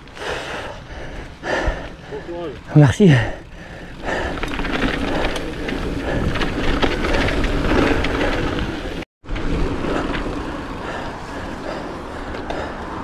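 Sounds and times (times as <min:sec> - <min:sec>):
bike rattles and clicks: 0:00.0 - 0:13.0
bike tyres rumbling on trail: 0:00.0 - 0:13.0
wind: 0:00.0 - 0:13.0.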